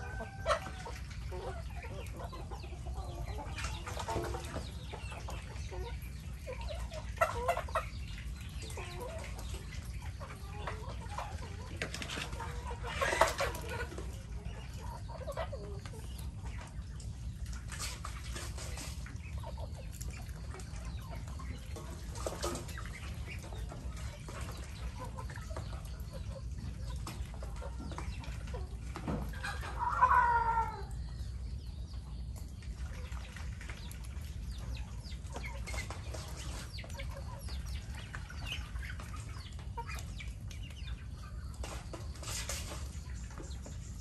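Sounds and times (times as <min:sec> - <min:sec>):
chickens clucking: 0:00.0 - 0:44.0
loud chicken call: 0:29.4 - 0:31.0.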